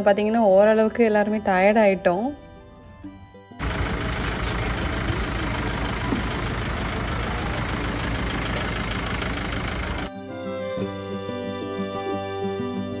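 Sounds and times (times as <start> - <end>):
music: 0.0 - 4.1, 10.1 - 13.0
van engine idling: 2.7 - 10.1
loud outdoor noise: 3.6 - 10.1.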